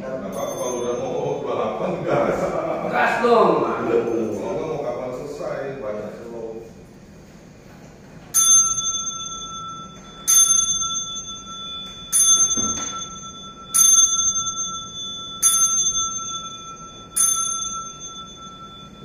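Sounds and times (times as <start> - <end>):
ritual bell ringing: 0.2 - 2.5, 3.9 - 5.0, 8.3 - 19.0.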